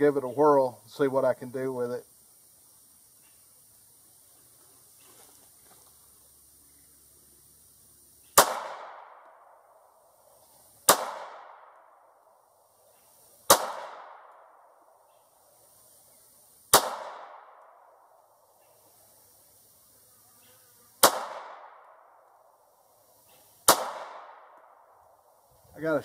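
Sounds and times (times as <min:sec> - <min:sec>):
pistol shots echoing: 0:08.4 - 0:09.4, 0:10.9 - 0:11.8, 0:13.5 - 0:14.6, 0:16.7 - 0:17.8, 0:21.0 - 0:22.0, 0:23.7 - 0:24.9.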